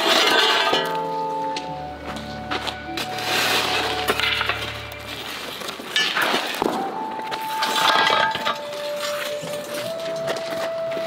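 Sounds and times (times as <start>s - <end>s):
background music: 0.0s - 11.0s
sand crumbling and scraping: 3.0s - 6.8s.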